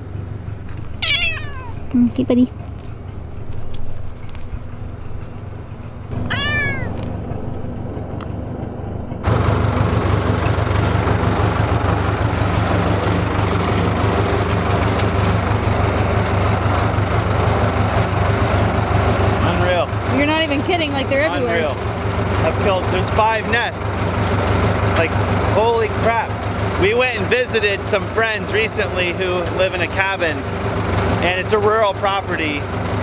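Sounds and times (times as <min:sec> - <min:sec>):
diesel engine idling: 0:00.0 - 0:33.0
cat meowing: 0:01.0 - 0:01.9, 0:06.2 - 0:07.1.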